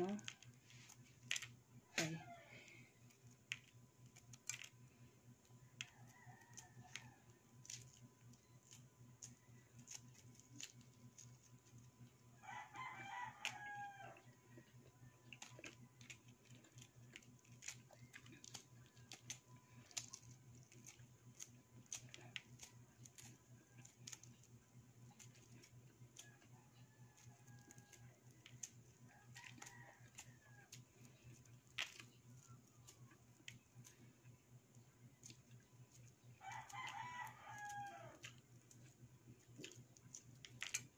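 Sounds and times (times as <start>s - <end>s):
eggshell crackling as peeled: 3.0s - 12.0s, 12.6s - 34.0s, 34.6s - 40.9s
distant rooster crowing: 5.7s - 7.4s, 12.4s - 14.8s, 26.4s - 28.2s, 29.1s - 30.8s, 36.4s - 38.3s.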